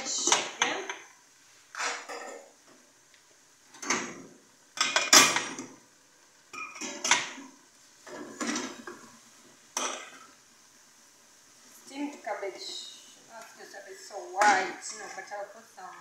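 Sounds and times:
metal pots clattering: 0:01.8 - 0:02.5, 0:03.8 - 0:05.8, 0:06.5 - 0:09.1, 0:09.8 - 0:10.4.

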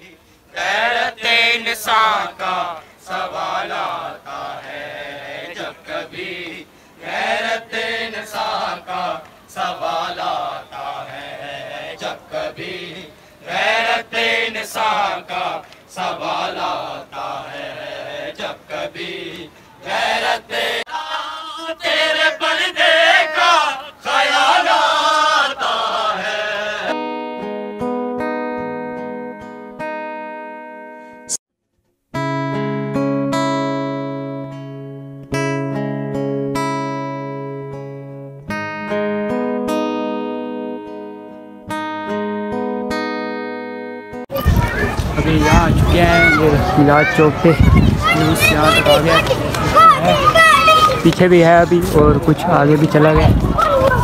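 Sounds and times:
acoustic guitar music: 0:26.4 - 0:54.0.

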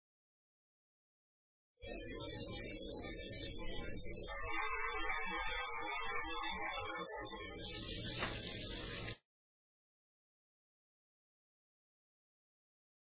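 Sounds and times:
buzzing whirring with hiss: 0:01.8 - 0:09.2.

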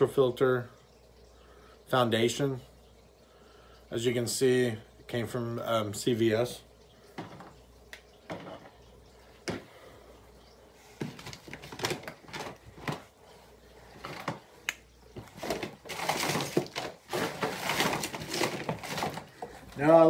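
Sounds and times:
packaging rustling and crinkling: 0:11.0 - 0:13.1, 0:13.9 - 0:14.6, 0:15.2 - 0:19.9.

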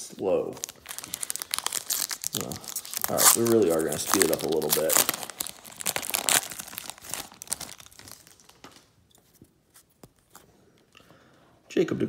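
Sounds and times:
foil wrapper crinkling and tearing: 0:00.3 - 0:09.0.

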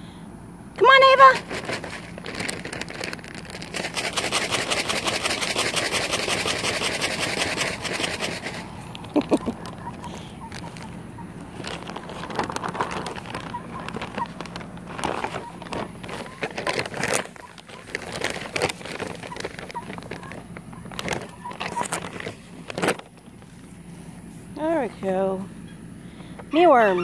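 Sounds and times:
rapid crinkling rustle: 0:01.0 - 0:25.2
chicken clucking: 0:04.4 - 0:11.5, 0:15.2 - 0:16.5, 0:19.2 - 0:22.0.

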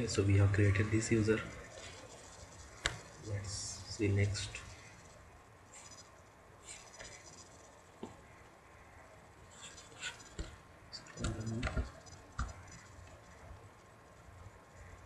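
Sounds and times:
computer mouse clicks: 0:09.6 - 0:13.3.

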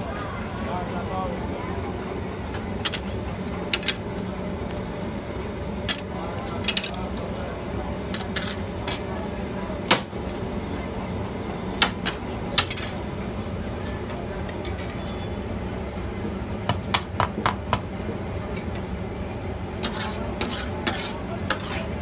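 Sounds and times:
steady background noise: 0:00.0 - 0:22.0
metal spatula clanking on griddle: 0:19.8 - 0:21.9.

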